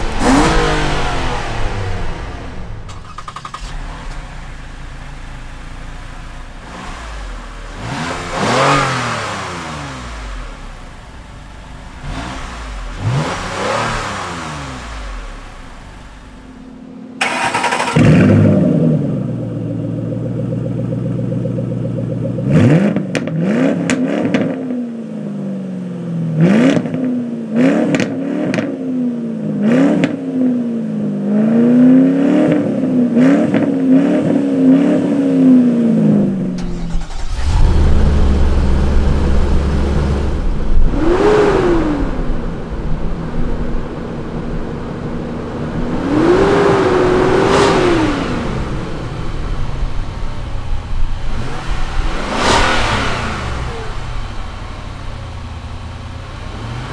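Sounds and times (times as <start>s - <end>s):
car engine idling: 0.0s - 23.3s, 35.8s - 56.9s
car exhaust revving: 0.0s - 24.7s, 31.3s - 56.9s.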